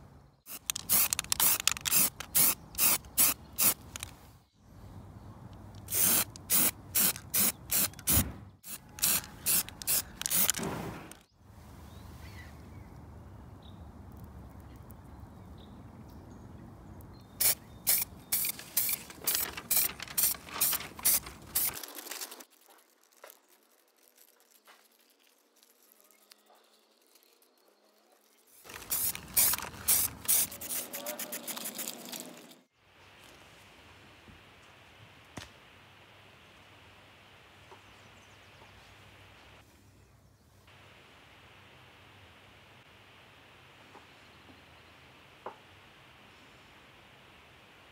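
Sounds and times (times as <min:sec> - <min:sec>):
aerosol spray can bursts: 0:00.5 - 0:04.0, 0:05.8 - 0:11.2, 0:17.4 - 0:21.8, 0:28.7 - 0:32.0.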